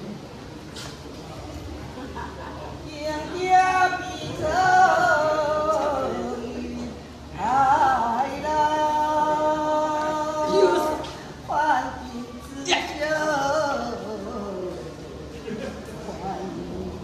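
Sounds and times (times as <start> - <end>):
woman chanting: 2.9 - 15.0.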